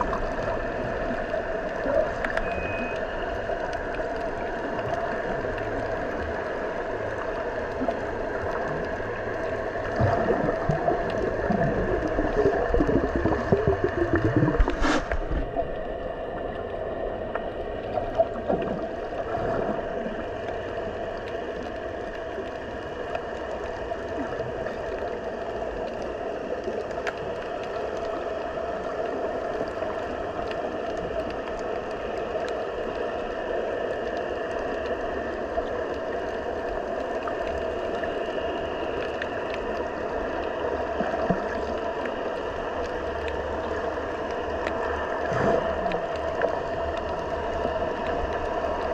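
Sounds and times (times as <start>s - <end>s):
faint ticks: 0.0s - 13.9s, 14.6s - 48.9s
underwater hum and hiss: 0.0s - 48.9s.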